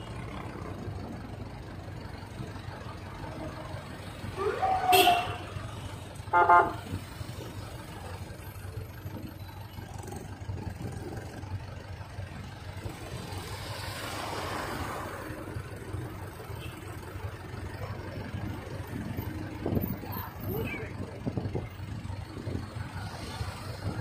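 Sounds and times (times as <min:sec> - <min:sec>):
road traffic rumble: 0:00.0 - 0:24.0
car passing close: 0:12.8 - 0:15.6.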